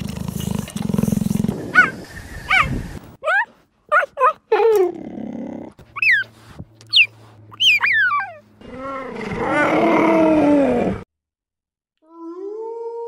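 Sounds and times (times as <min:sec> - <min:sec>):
cheetah chirping: 0:06.9 - 0:08.4.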